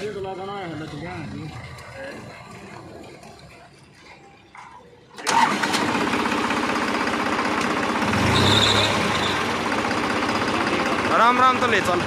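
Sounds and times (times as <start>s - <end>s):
diesel tractor engine starting: 5.0s - 12.0s.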